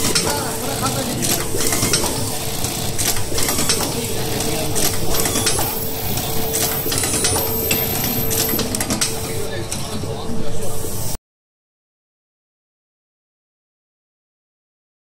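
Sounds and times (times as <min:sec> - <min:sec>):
steady machine hum: 0:00.0 - 0:11.2
pneumatic clamp clicks: 0:01.2 - 0:09.9.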